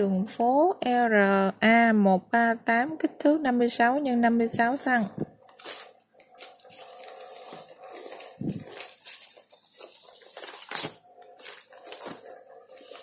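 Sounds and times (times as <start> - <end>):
plastic packaging rustling: 5.3 - 13.0.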